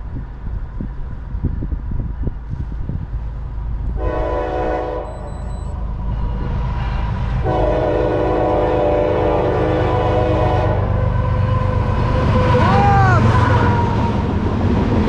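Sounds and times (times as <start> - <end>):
train engine rumble: 0.0 - 15.0
locomotive horn blast: 4.0 - 6.5, 7.2 - 14.3.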